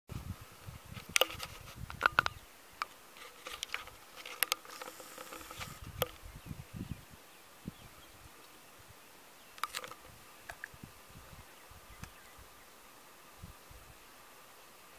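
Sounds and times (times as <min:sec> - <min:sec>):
faint insect buzzing: 0:00.2 - 0:14.9
sharp clicks and crackles: 0:01.0 - 0:06.2, 0:09.6 - 0:10.7.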